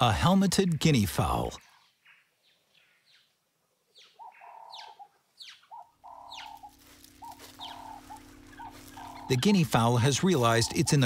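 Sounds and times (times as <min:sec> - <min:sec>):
birds chirping: 0:00.0 - 0:11.0
guinea fowl calling: 0:03.9 - 0:11.0
low steady hum: 0:05.2 - 0:11.0.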